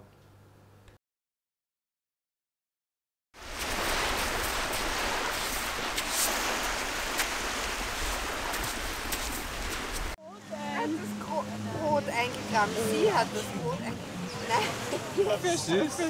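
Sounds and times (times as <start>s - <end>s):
gentle surf on a beach: 3.4s - 16.0s.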